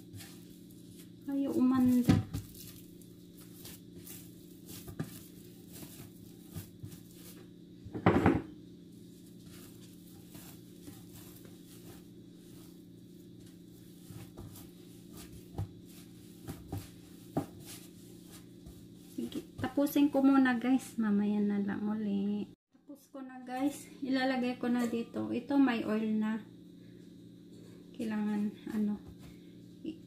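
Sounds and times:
dough thudding on a table: 0:01.5 - 0:08.6, 0:09.4 - 0:20.0.

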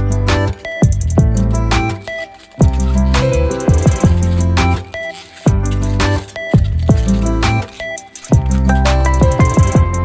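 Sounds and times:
background music with heavy beat: 0:00.0 - 0:10.0.

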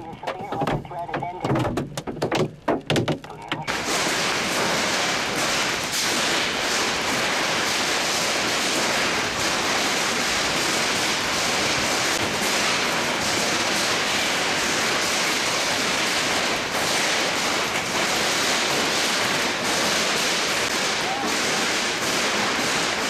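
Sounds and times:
hail and heavy rain splashing: 0:00.0 - 0:23.0.

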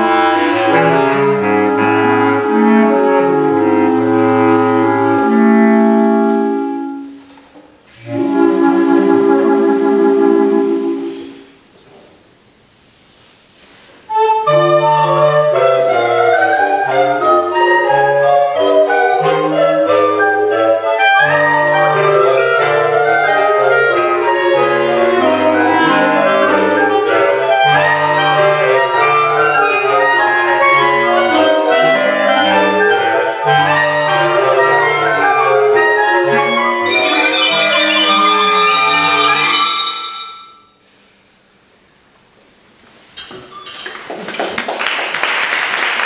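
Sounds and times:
clarinet choir playing: 0:00.0 - 0:07.2, 0:07.9 - 0:11.4, 0:14.1 - 0:40.6
mallet instrument ringing notes: 0:36.9 - 0:40.8.

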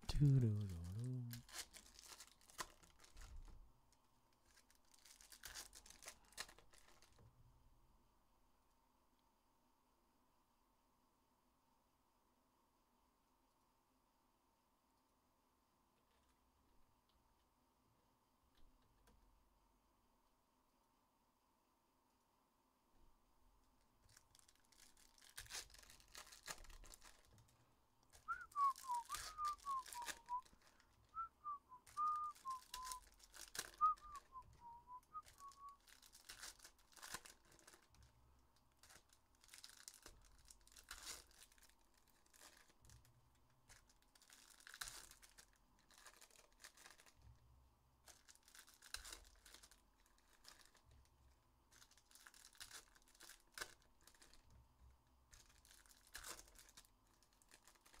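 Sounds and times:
card pack wrappers crinkling: 0:00.0 - 0:03.5, 0:04.4 - 0:07.2, 0:24.1 - 0:47.2, 0:48.0 - 0:54.5, 0:55.3 - 0:58.0
person whistling a tune: 0:28.3 - 0:30.4, 0:31.1 - 0:33.0, 0:33.7 - 0:35.8.

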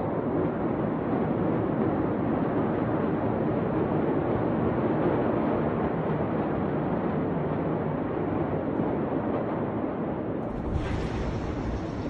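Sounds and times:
outdoor rushing noise: 0:10.4 - 0:12.0.

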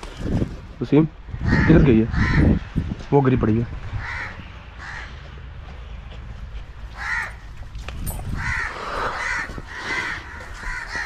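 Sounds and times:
crows cawing: 0:01.4 - 0:02.6, 0:04.0 - 0:05.2, 0:06.9 - 0:07.5, 0:08.3 - 0:11.0.

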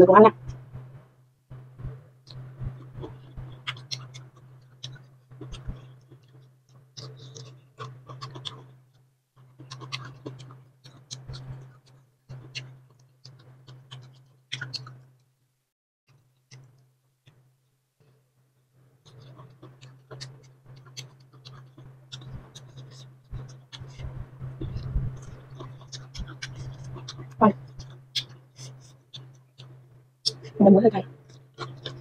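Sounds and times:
steady low hum: 0:00.0 - 0:15.2, 0:18.9 - 0:32.0
wet chewing mouth clicks: 0:09.6 - 0:15.0, 0:19.0 - 0:24.1, 0:31.3 - 0:32.0.

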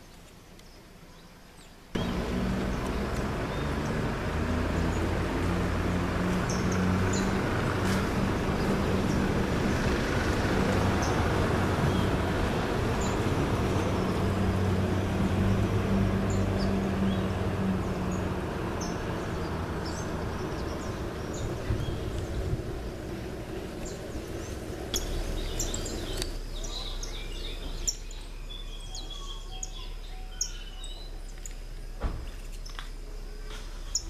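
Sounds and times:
engine humming: 0:01.5 - 0:34.0.

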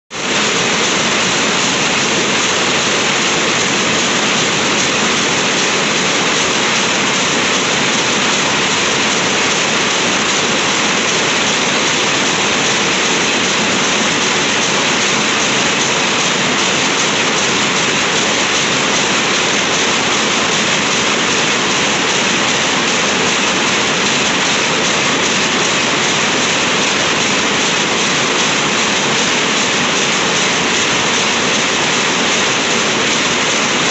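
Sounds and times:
power looms clattering: 0:00.1 - 0:33.9.

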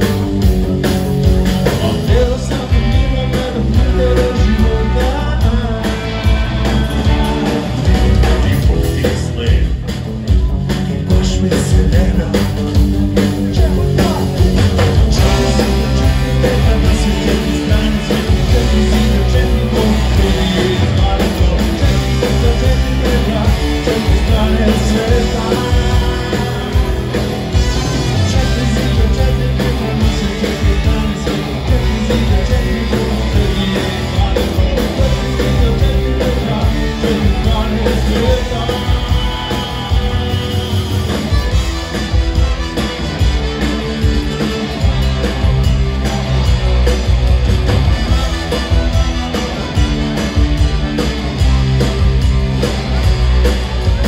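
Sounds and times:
live rock band with brass: 0:00.0 - 0:54.0
person singing: 0:01.6 - 0:41.8.

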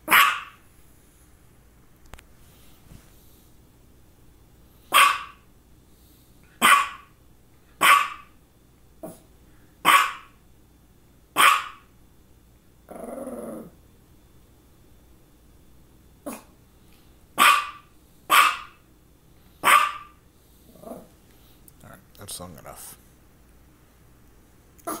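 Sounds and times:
small dog barking: 0:00.0 - 0:00.6, 0:04.9 - 0:05.5, 0:06.6 - 0:07.2, 0:07.8 - 0:08.4, 0:09.8 - 0:10.4, 0:11.4 - 0:11.9, 0:16.2 - 0:16.5, 0:17.4 - 0:18.8, 0:19.6 - 0:20.2
dog growling: 0:09.0 - 0:09.2, 0:12.9 - 0:13.8, 0:16.2 - 0:16.5, 0:20.7 - 0:21.2.

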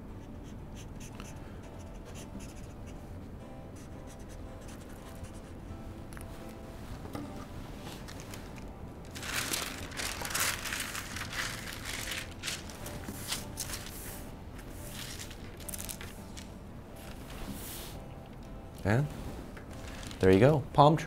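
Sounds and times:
paper rustling and crinkling: 0:07.9 - 0:14.2, 0:14.8 - 0:17.6, 0:19.7 - 0:20.4.

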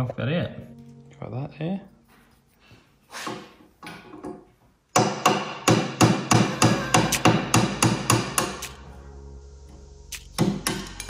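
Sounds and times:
hammer striking metal punch: 0:04.9 - 0:08.8, 0:10.4 - 0:11.0.

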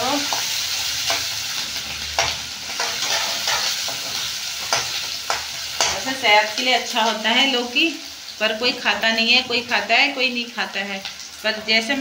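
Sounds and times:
vegetables sizzling in hot oil: 0:00.0 - 0:12.0
spatula scraping and knocking pan: 0:02.2 - 0:06.2.

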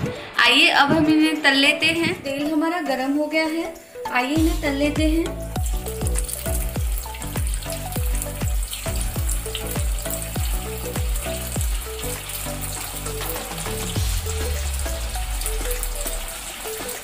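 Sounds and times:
food sizzling in hot oil: 0:03.2 - 0:17.0
background music with bass beat: 0:04.4 - 0:17.0.

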